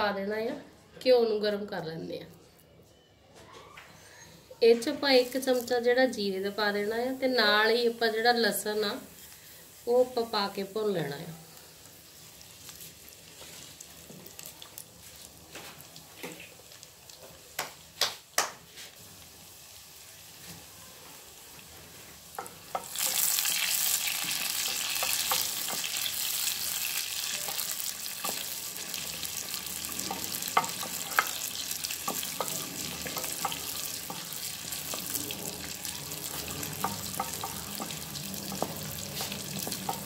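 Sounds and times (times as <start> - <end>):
seeds sizzling in hot oil: 5.0 - 40.0
wooden spoon stirring: 21.8 - 40.0.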